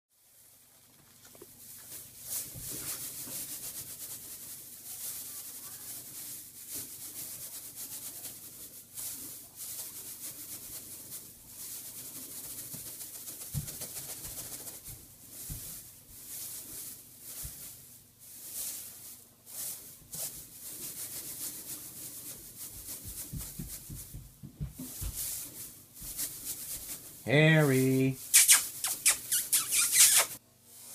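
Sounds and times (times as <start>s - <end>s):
dry hay rustling: 0.2s - 28.8s, 30.6s - 30.9s
soft low thumps: 23.0s - 25.4s.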